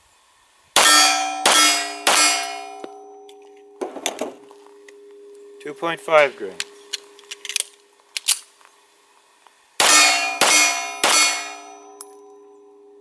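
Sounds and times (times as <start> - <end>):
steel target clanging: 0.8 - 7.6, 9.8 - 12.9
pistol shot: 9.8 - 11.7.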